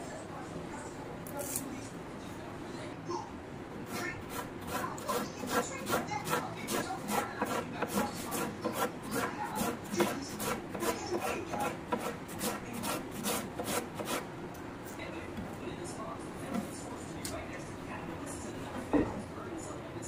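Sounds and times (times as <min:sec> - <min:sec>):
knife slicing cabbage on wooden board: 0:03.9 - 0:14.2.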